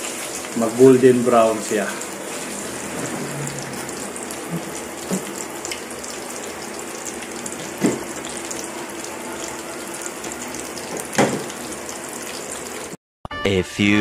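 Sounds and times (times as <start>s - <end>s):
chicken frying in oil: 0.0s - 13.0s.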